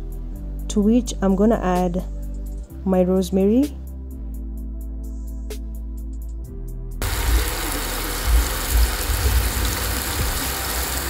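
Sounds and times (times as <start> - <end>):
soft background music: 0.0 - 11.0
herbs sizzling in hot oil: 7.0 - 11.0.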